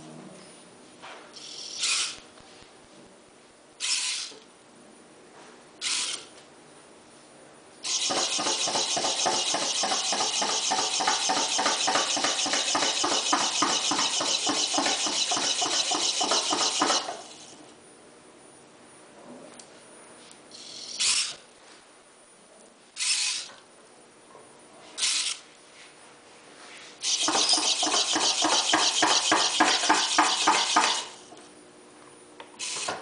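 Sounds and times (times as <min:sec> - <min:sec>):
servo motors whirring: 0:01.4 - 0:02.2, 0:03.8 - 0:04.4, 0:05.8 - 0:06.3, 0:07.8 - 0:17.6, 0:20.6 - 0:21.4, 0:23.0 - 0:23.5, 0:25.0 - 0:25.4, 0:27.0 - 0:31.2, 0:32.6 - 0:33.0.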